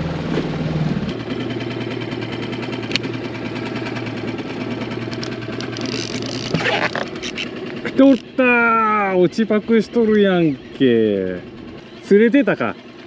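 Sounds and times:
fishing reel whirring: 0:03.9 - 0:13.0.

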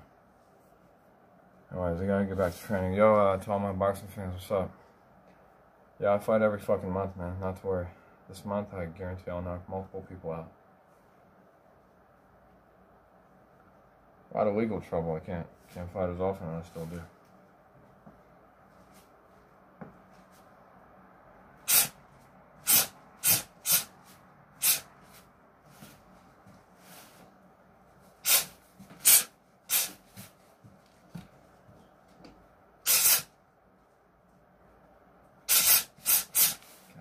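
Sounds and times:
sharp hissing breaths: 0:21.6 - 0:22.0, 0:22.6 - 0:24.0, 0:24.6 - 0:24.9, 0:28.2 - 0:30.0, 0:32.8 - 0:33.3, 0:35.5 - 0:36.9.

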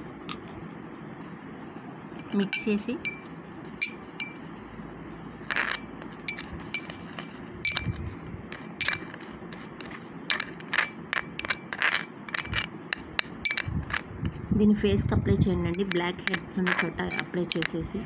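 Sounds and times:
glass bowl ringing: 0:02.2 - 0:04.5, 0:05.5 - 0:08.0, 0:08.8 - 0:09.2, 0:12.3 - 0:12.7, 0:13.4 - 0:14.0, 0:15.7 - 0:17.7
spoon scraping glass bowl: 0:02.3 - 0:04.5, 0:05.3 - 0:14.0, 0:15.7 - 0:17.8.

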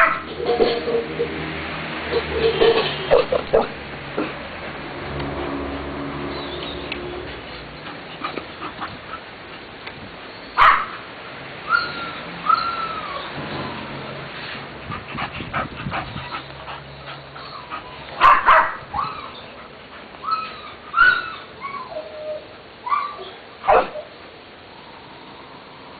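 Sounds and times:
dog barking: 0:00.0 - 0:00.3, 0:03.1 - 0:03.8, 0:10.6 - 0:11.0, 0:18.2 - 0:18.9, 0:23.6 - 0:24.1
dog whining yips: 0:11.7 - 0:13.8, 0:17.4 - 0:19.4, 0:20.2 - 0:24.1.

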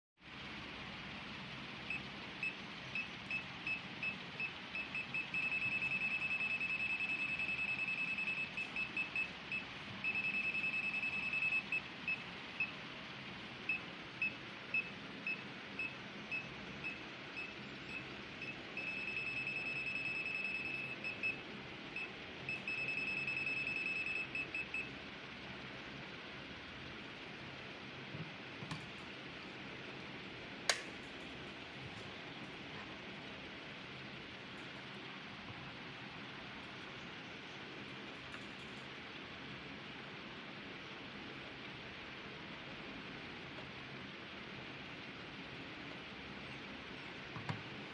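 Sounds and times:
high-pitched meter beeping: 0:01.9 - 0:12.7, 0:13.7 - 0:21.4, 0:22.0 - 0:24.9.

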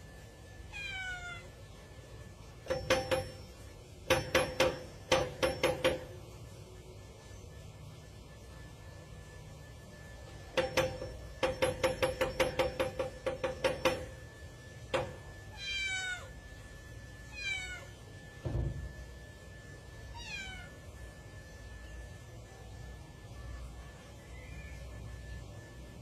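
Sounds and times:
cat meowing: 0:00.7 - 0:01.6, 0:15.5 - 0:16.4, 0:17.3 - 0:18.0, 0:20.1 - 0:20.8
dull thump: 0:18.4 - 0:18.9.

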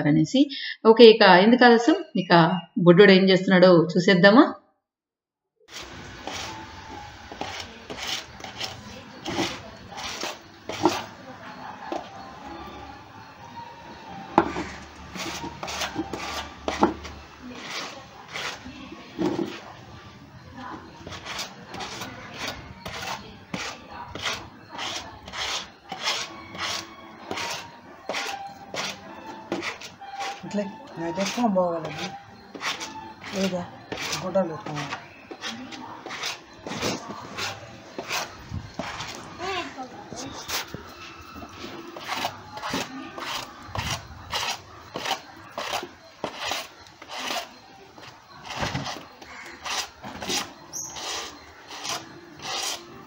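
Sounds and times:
brush scrubbing wet garment: 0:07.3 - 0:11.1.

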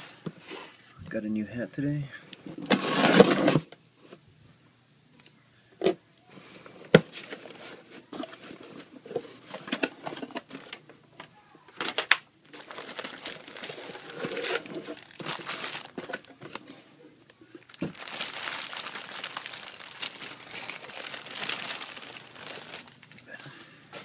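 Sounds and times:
plastic wrapping rustling: 0:11.8 - 0:24.0
packing tape being slit: 0:12.6 - 0:16.3.

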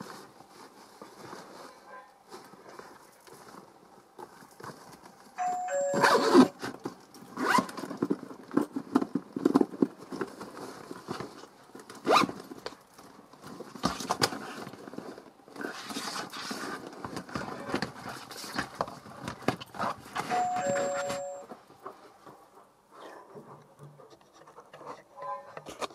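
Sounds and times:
leather bag rubbing and clicking: 0:07.2 - 0:08.7, 0:12.0 - 0:12.5.

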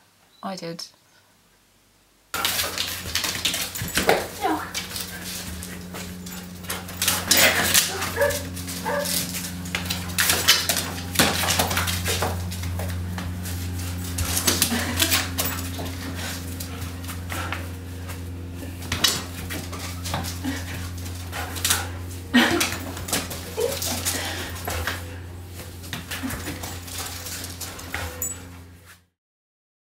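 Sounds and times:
steady low hum: 0:01.0 - 0:29.0
dog whining: 0:03.6 - 0:09.6, 0:22.4 - 0:27.4
dog barking: 0:06.3 - 0:09.3.

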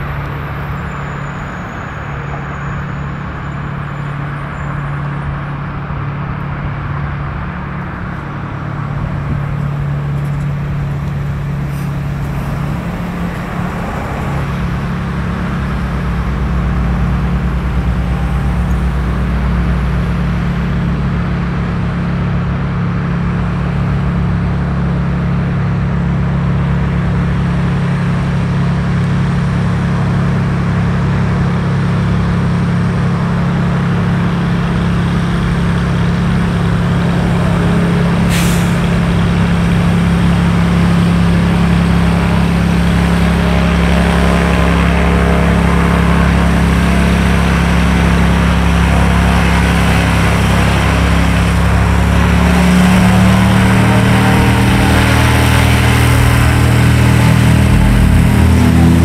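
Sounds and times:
propeller aircraft engine droning: 0:00.0 - 0:59.0
brief hiss: 0:38.3 - 0:39.0.

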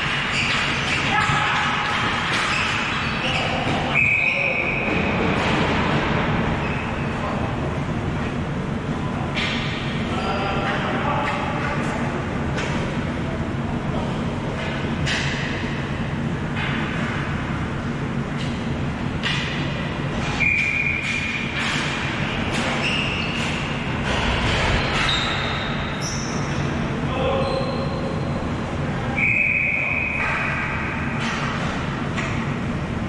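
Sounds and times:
hockey sticks and ball clacking: 0:00.0 - 0:06.0, 0:20.2 - 0:26.2
steady low hum: 0:00.0 - 0:33.0.

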